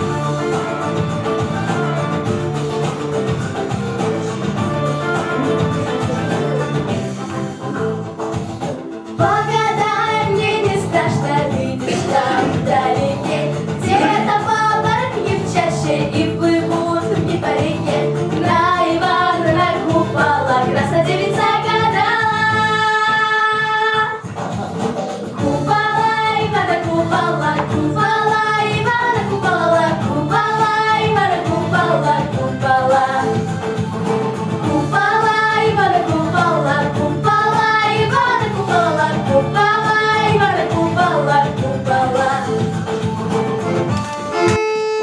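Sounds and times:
instrumental accompaniment with beat: 0.0s - 45.0s
girls singing a duet: 9.2s - 24.2s, 25.4s - 33.5s, 34.6s - 42.7s.

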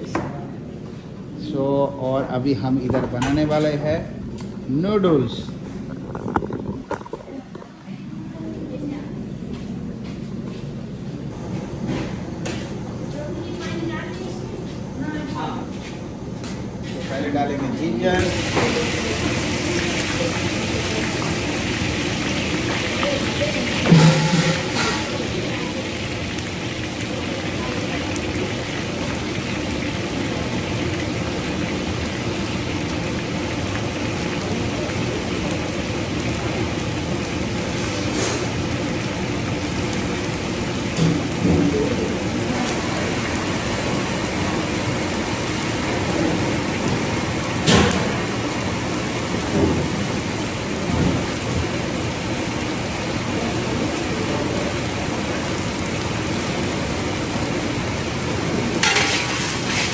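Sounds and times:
food sizzling in hot oil: 17.1s - 59.9s.

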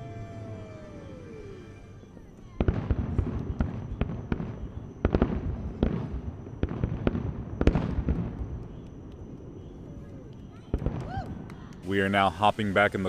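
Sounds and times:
rolling echo of bangs: 2.6s - 8.6s.

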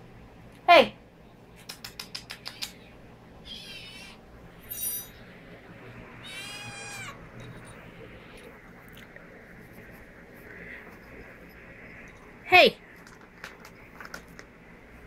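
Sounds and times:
kitten mewing: 3.4s - 4.2s, 6.2s - 7.2s.

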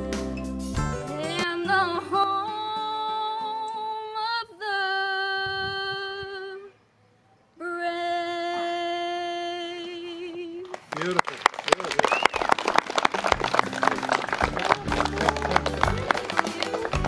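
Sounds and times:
woman singing unaccompanied: 1.1s - 6.8s, 7.6s - 10.7s.

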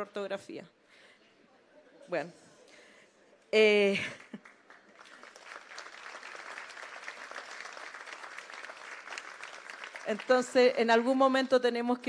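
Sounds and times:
audience applauding: 4.4s - 10.8s.

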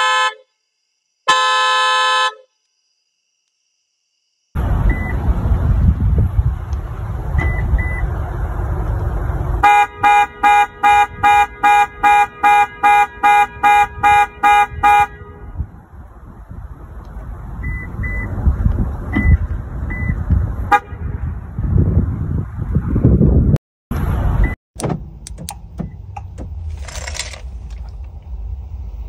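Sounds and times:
car alarm horn honking: 0.0s - 0.5s, 1.3s - 2.5s, 9.6s - 15.6s, 20.7s - 21.2s
low rumble: 4.6s - 9.6s, 15.3s - 29.0s.

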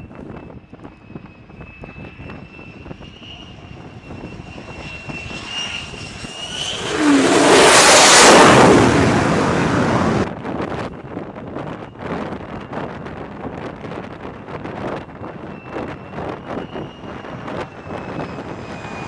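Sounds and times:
jet engine turbine whine: 0.0s - 19.0s
loud rush of jet noise: 2.2s - 10.4s, 15.4s - 19.0s.

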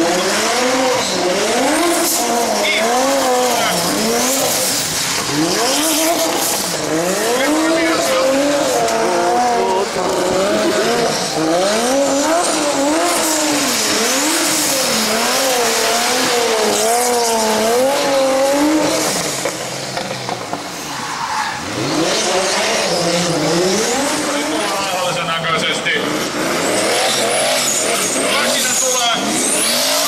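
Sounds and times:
car engine revving: 0.0s - 30.0s
tyre squeal: 20.8s - 23.4s, 26.6s - 30.0s.

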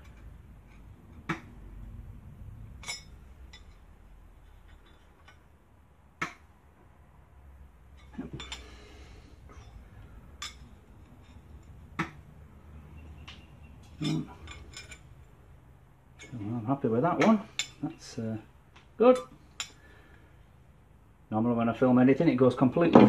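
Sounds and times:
knife blade clinking on steel: 2.8s - 3.8s.

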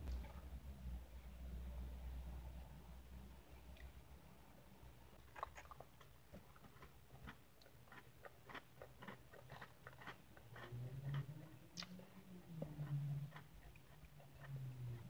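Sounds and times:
chewing crunchy cookies: 5.2s - 15.0s.

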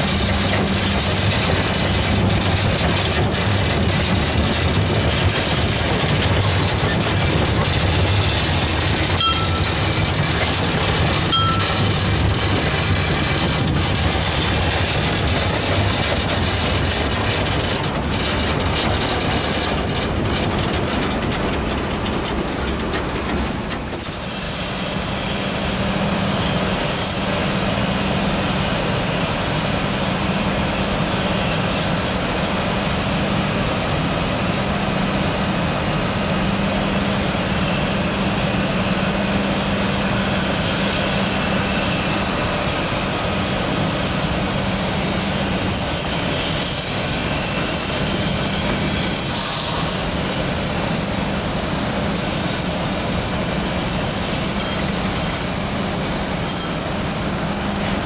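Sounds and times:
steam locomotive running slowly: 0.0s - 58.0s.

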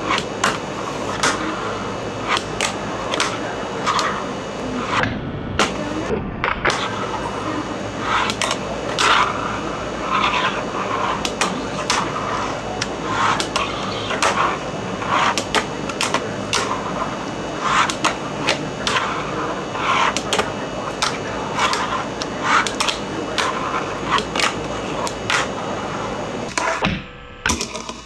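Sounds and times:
fingerboard rolling and scraping: 8.0s - 18.1s.

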